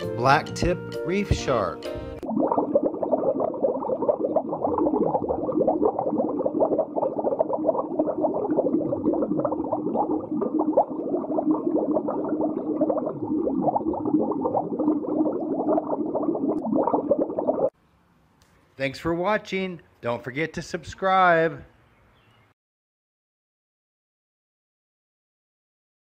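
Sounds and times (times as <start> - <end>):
underwater bubbling: 1.3 - 17.8.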